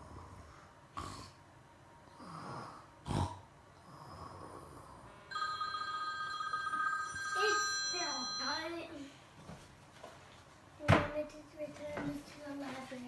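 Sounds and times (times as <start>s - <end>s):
child snoring: 0.0s - 1.4s, 2.1s - 5.1s
electronic ringing tone: 5.3s - 8.9s.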